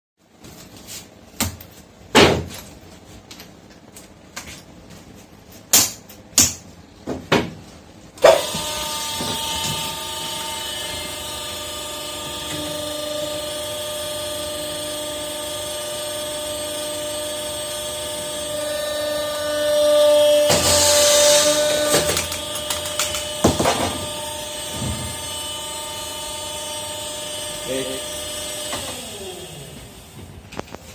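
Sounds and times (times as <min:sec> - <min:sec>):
hydraulic machine whining hum: 0:08.2 - 0:30.9.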